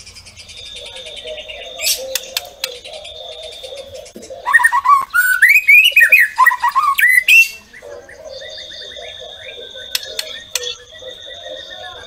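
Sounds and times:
bird singing whistled notes: 0:00.0 - 0:12.0.

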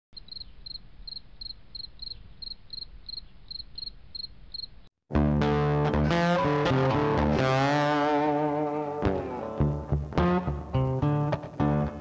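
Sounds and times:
cricket chirping: 0:00.2 - 0:04.9
loud guitar music: 0:05.1 - 0:12.0.

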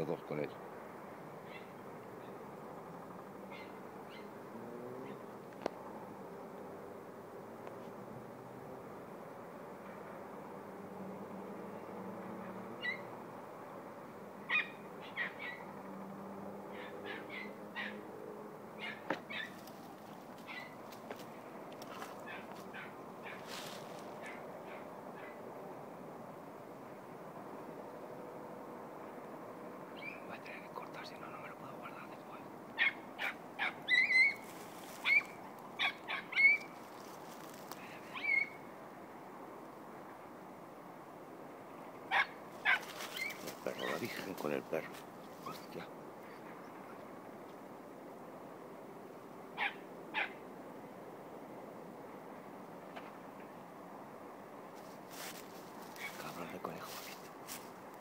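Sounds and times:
young dog yelping: 0:01.4 - 0:01.8, 0:03.5 - 0:04.3, 0:12.8 - 0:13.1, 0:14.5 - 0:15.7, 0:16.7 - 0:18.0, 0:18.8 - 0:19.6, 0:20.4 - 0:20.8, 0:21.9 - 0:23.5, 0:24.2 - 0:25.4, 0:32.8 - 0:34.4, 0:35.0 - 0:36.7, 0:38.1 - 0:38.6, 0:42.1 - 0:44.0, 0:49.6 - 0:50.4
short high-pitched animal calls: 0:12.8 - 0:13.1, 0:32.8 - 0:36.7, 0:38.1 - 0:38.6, 0:42.1 - 0:44.0.

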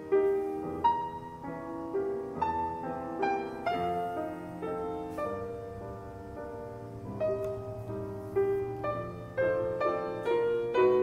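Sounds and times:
soft piano music: 0:00.0 - 0:11.0.

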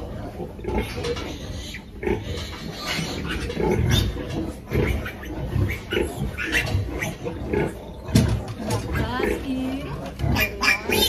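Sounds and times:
piglets squealing and grunting: 0:00.0 - 0:11.0.

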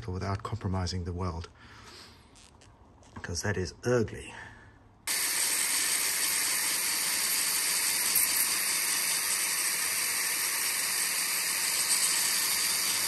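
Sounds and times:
belt sander grinding metal: 0:05.1 - 0:13.0.

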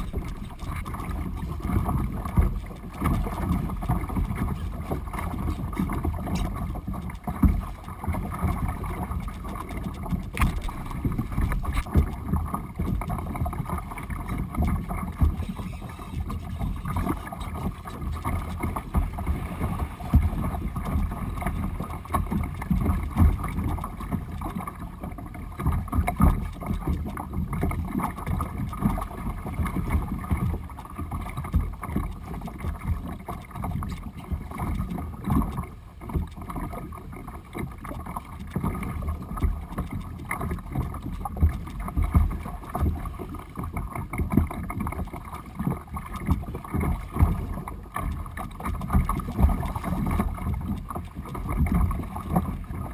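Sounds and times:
wind buffeting microphone: 0:00.0 - 0:04.4
water splashing along kayak hull: 0:00.0 - 0:52.9.

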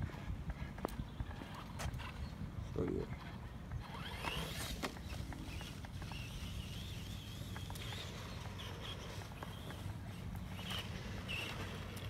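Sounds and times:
toy truck motor whining: 0:03.8 - 0:12.0.

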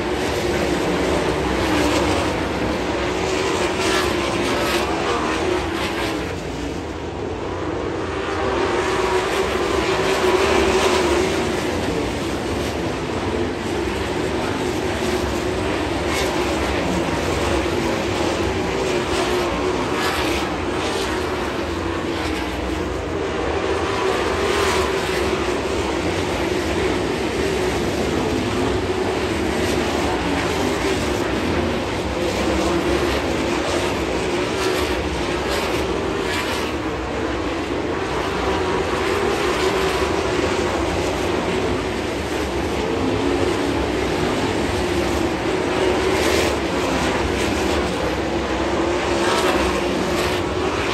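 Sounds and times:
race car engines droning: 0:00.0 - 0:50.9.

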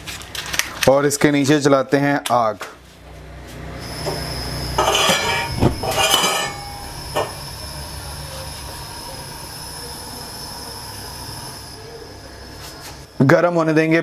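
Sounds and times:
gas burner hissing: 0:03.7 - 0:13.9
gas igniting with whoosh: 0:04.0 - 0:07.4.

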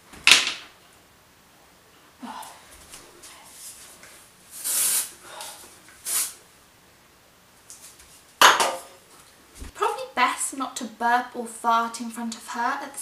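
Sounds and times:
aerosol spray hissing: 0:04.6 - 0:05.2, 0:06.0 - 0:06.4.

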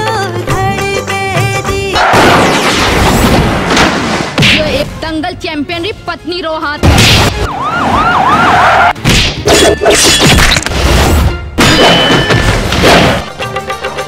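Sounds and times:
wailing siren-like sweep: 0:07.4 - 0:09.0.

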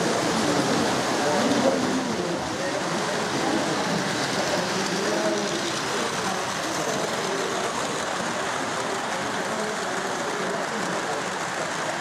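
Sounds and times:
crowd murmuring: 0:00.0 - 0:12.0
model train wheels rumbling: 0:00.0 - 0:12.0.

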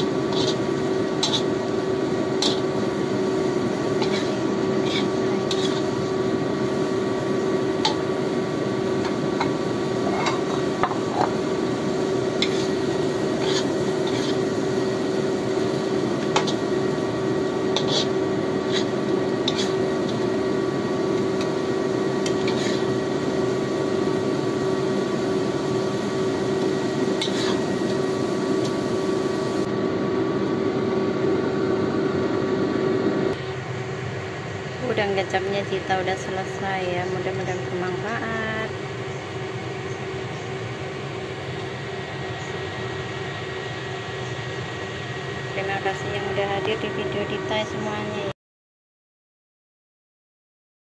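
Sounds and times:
metal spatula scraping a wok: 0:00.0 - 0:01.6, 0:02.4 - 0:02.7, 0:03.9 - 0:06.0, 0:10.0 - 0:11.3, 0:12.4 - 0:14.5, 0:17.7 - 0:20.2, 0:22.2 - 0:23.0, 0:27.2 - 0:27.7
steady hum: 0:00.0 - 0:48.4.

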